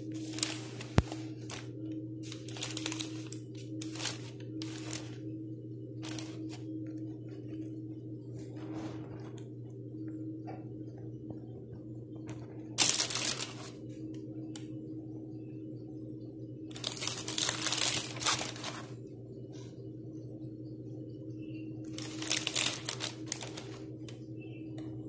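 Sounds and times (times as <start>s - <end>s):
rustling handling noise: 0.0s - 5.3s, 6.0s - 9.6s, 12.3s - 14.1s, 16.7s - 19.0s, 21.9s - 24.2s
steady low hum: 0.0s - 25.0s.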